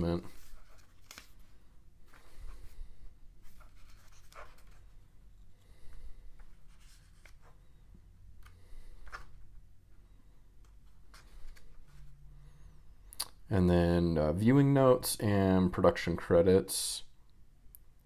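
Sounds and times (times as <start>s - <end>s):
paper pages turning: 0.2s - 2.7s, 3.4s - 5.0s, 6.4s - 7.7s, 10.8s - 12.1s.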